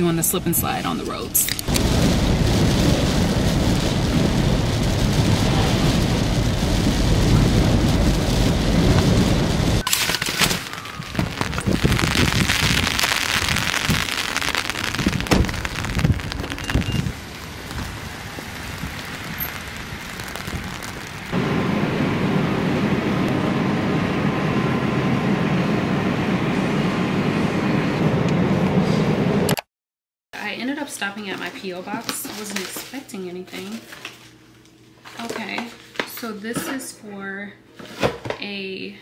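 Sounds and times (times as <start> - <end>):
tyre and road rumble: 0.0 - 25.6
rain on car: 1.6 - 9.8, 11.1 - 21.6
rain on umbrella: 1.6 - 21.5.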